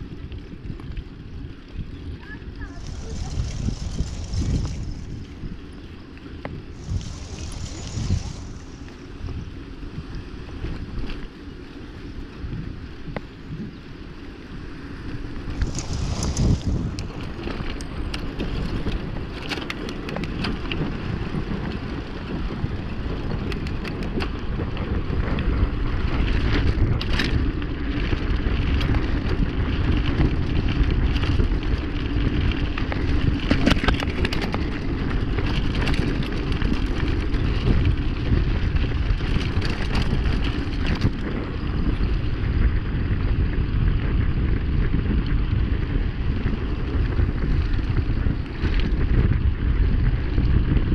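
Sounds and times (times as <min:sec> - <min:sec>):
wind buffeting microphone: 0:00.0 - 0:50.9
tyre rumble: 0:02.3 - 0:10.3, 0:15.3 - 0:22.4
bike rattling clicks: 0:15.3 - 0:50.8.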